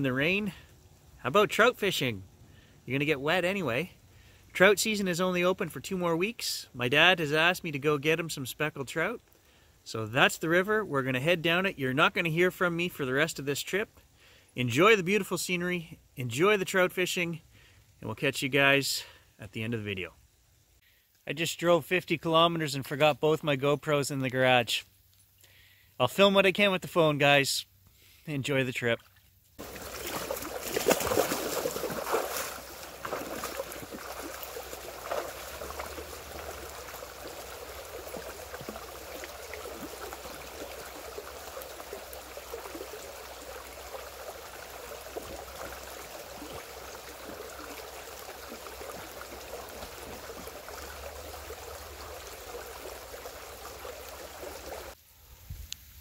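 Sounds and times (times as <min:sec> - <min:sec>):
river water rushing: 0:29.6 - 0:55.0.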